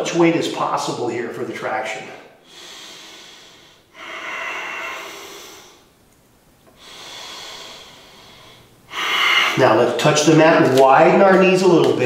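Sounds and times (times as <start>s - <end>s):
man breathing slowly: 2.3s - 6.0s, 6.7s - 9.7s.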